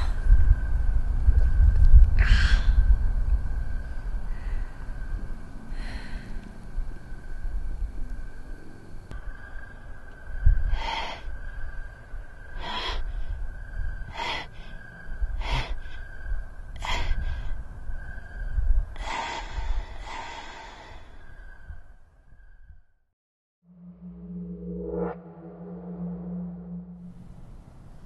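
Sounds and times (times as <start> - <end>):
low rumble: 23.7 - 28.0
steady high tone: 23.7 - 28.0.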